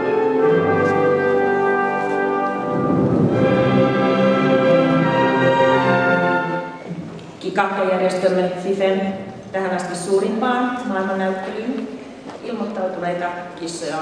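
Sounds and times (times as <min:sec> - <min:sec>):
orchestral brass chords: 0:00.0 - 0:07.1.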